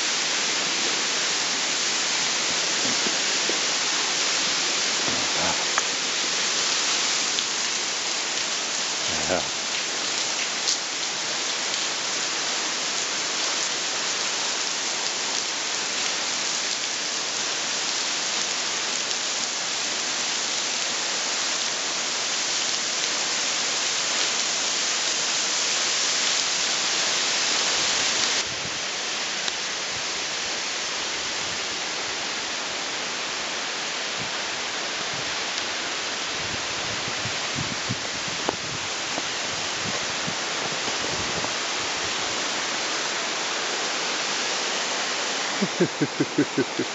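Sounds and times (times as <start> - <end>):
waterfall rushing: 0.0 - 18.8, 37.5 - 46.9.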